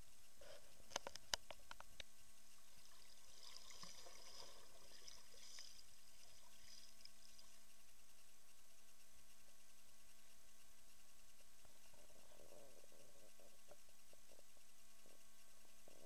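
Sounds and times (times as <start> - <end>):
underwater swirling and bubbling: 2.5 - 7.7.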